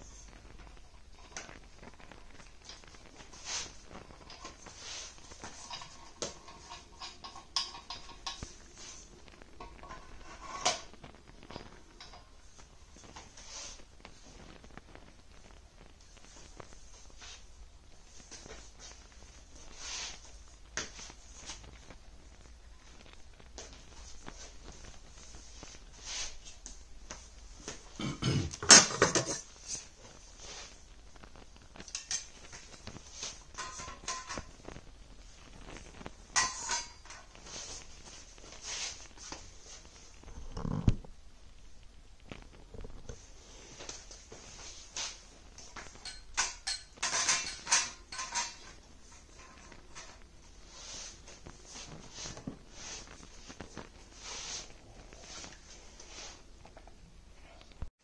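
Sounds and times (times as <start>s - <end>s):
metal brackets clattering: 45.9s - 50.1s.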